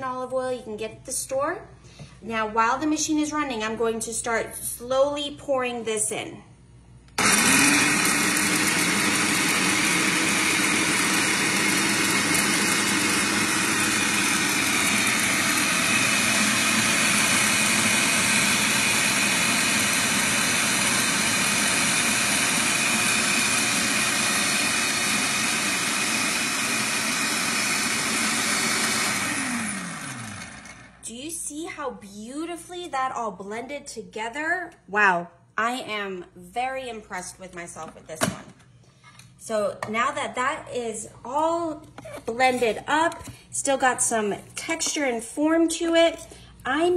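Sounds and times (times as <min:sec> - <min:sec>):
food processor running: 0:07.2 - 0:31.0.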